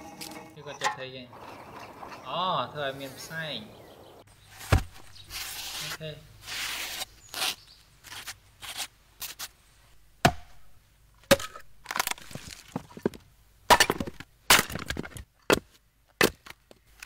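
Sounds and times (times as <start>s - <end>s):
axe chopping into a log: 4.7s - 5.0s, 10.2s - 10.6s, 11.3s - 11.6s, 13.7s - 16.5s
wood cracking and splitting: 11.3s - 13.1s, 13.7s - 15.6s.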